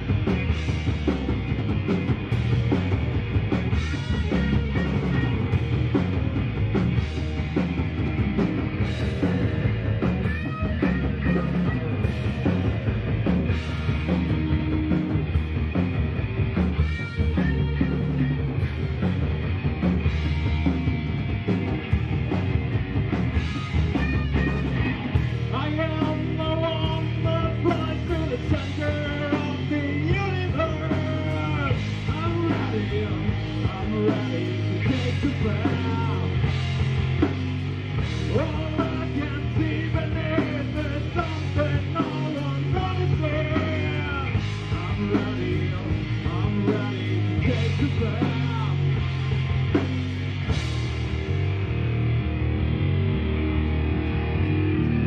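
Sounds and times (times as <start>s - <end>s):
vocals: 0.0s - 15.8s, 23.5s - 49.9s
drum kit: 0.0s - 55.0s
electric guitars: 0.0s - 55.0s.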